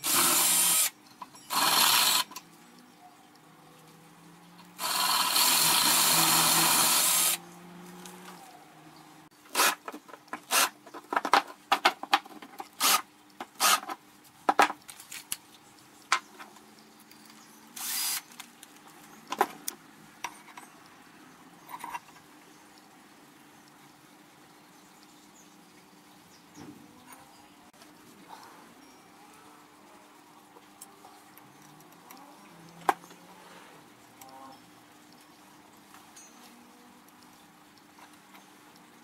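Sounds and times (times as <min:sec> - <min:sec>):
cordless drill drilling steel: 0:00.0 - 0:00.9, 0:01.5 - 0:02.3, 0:04.8 - 0:07.4, 0:12.8 - 0:13.0, 0:17.8 - 0:18.2.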